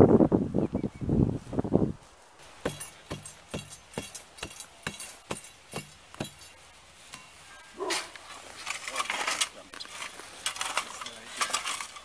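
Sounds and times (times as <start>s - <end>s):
tamping bar clinking strikes: 2.6s - 7.3s.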